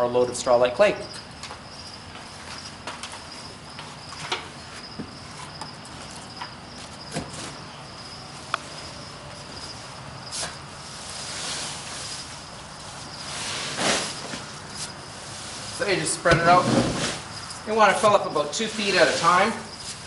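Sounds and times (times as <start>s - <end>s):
straw rustling under pitchfork: 10.3s - 20.0s.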